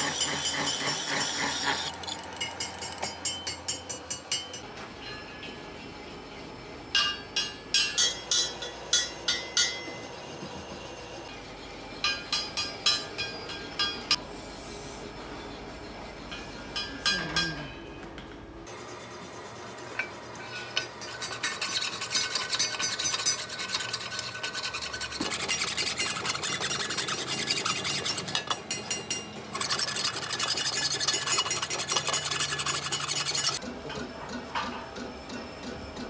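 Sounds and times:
faint machine hum: 0.0s - 36.0s
metal scraping: 20.4s - 33.6s.

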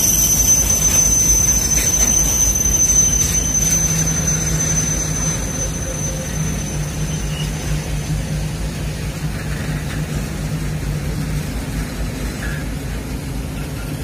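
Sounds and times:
steel wheels rumbling on rails: 0.0s - 14.0s.

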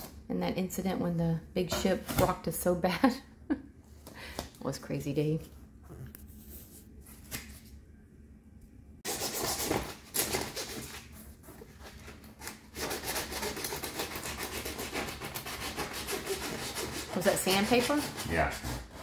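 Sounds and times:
sandpaper scratching rubber: 12.8s - 19.0s.

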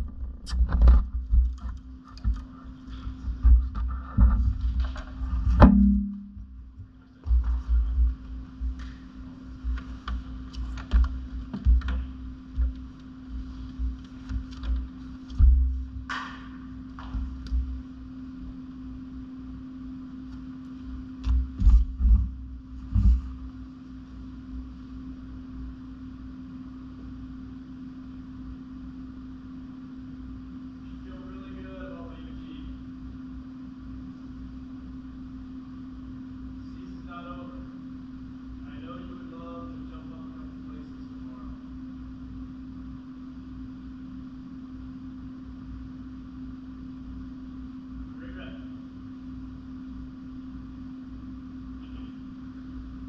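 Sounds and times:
low hum: 0.0s - 53.0s
dull low thumps: 3.2s - 8.8s, 15.3s - 16.1s, 21.3s - 23.5s.

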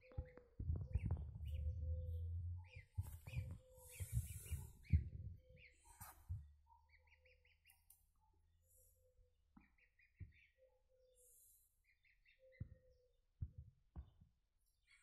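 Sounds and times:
soft low calls: 0.6s - 5.4s
goslings peeping: 1.0s - 6.2s, 6.9s - 7.8s.

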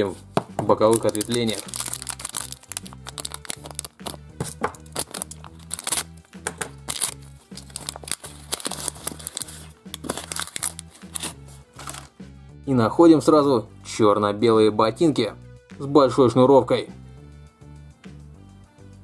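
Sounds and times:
background music with bass line: 0.0s - 19.0s
plastic wrapping crinkling and tearing: 0.8s - 12.1s.

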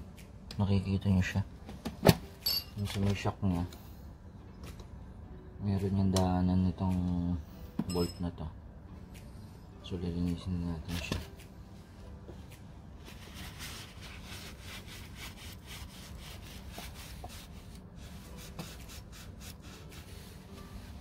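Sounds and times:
cloth rubbing scratchy wiping: 13.0s - 21.0s.

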